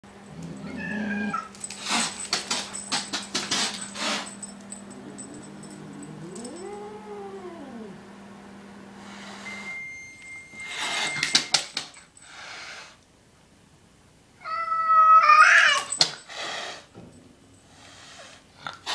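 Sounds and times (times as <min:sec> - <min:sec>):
cat yowling: 0:00.6 - 0:01.5, 0:05.9 - 0:08.0, 0:14.4 - 0:15.9
scuffling clattering noise: 0:01.6 - 0:04.6.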